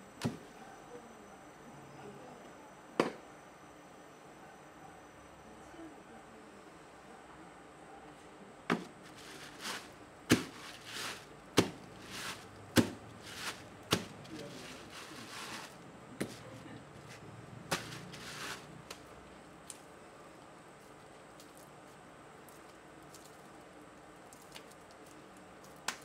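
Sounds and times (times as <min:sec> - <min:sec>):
clay rubbing and squishing: 0:08.8 - 0:19.8
hands slapping wet clay: 0:25.6 - 0:26.0.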